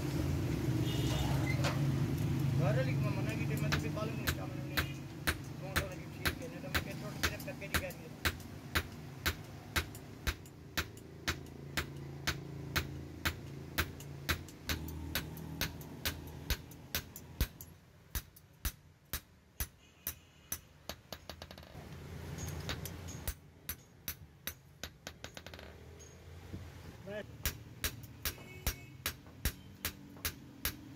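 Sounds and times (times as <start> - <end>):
hammer striking steel on anvil: 3.2 - 20.7, 27.4 - 30.9.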